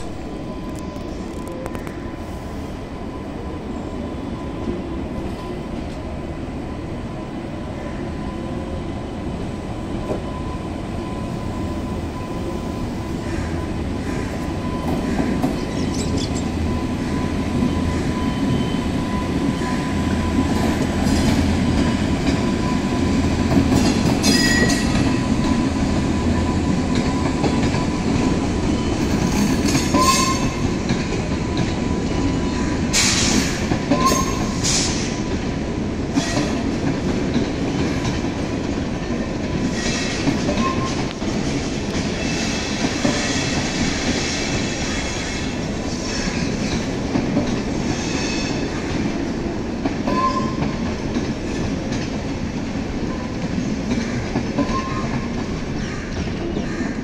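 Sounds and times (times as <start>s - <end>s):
train wheels rumbling on rails: 0.0s - 57.0s
wheels clicking over rail joints: 49.8s - 56.7s.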